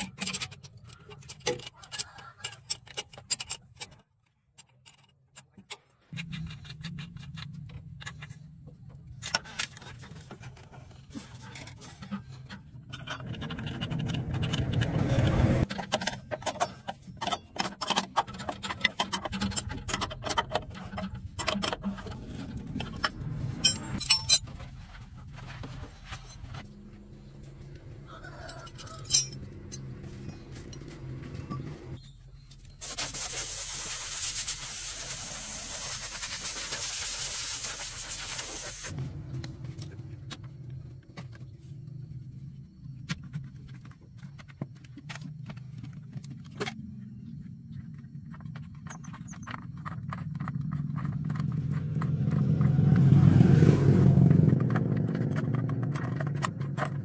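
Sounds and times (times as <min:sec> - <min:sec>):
spanners clinking on metal: 0:15.7 - 0:22.2, 0:22.8 - 0:24.6, 0:28.2 - 0:31.9
steady hiss: 0:32.8 - 0:38.9.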